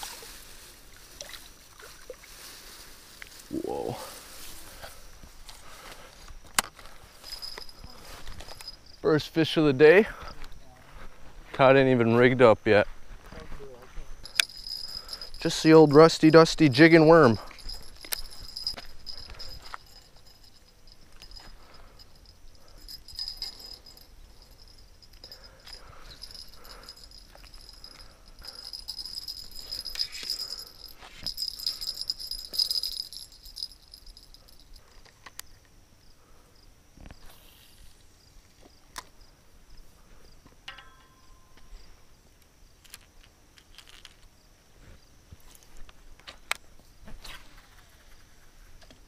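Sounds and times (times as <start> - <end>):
high insect trill: 0.0 - 49.0
fishing tackle clicking and rattling: 6.6 - 9.1, 14.2 - 35.4.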